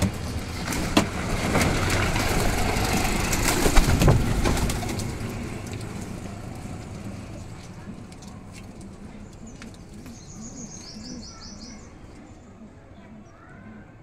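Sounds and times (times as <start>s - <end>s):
pigeon wings flapping: 0.0s - 10.2s.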